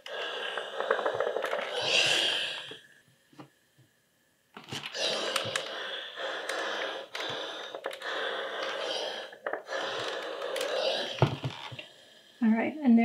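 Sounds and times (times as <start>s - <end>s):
steam iron hissing: 0.0s - 2.8s, 4.9s - 12.3s.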